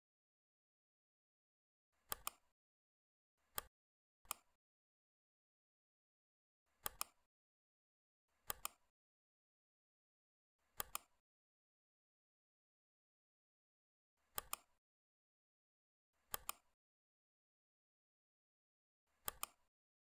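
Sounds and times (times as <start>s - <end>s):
computer mouse clicking: 2.0s - 2.5s, 3.5s - 3.7s, 4.3s - 4.6s, 6.8s - 7.3s, 8.4s - 8.9s, 10.6s - 11.2s, 14.3s - 14.8s, 16.2s - 16.8s, 19.1s - 19.7s.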